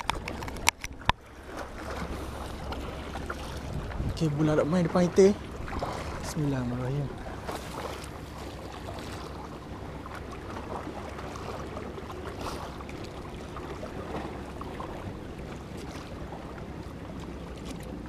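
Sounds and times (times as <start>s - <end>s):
moving water: 0.0s - 18.0s
wind noise: 3.4s - 4.9s.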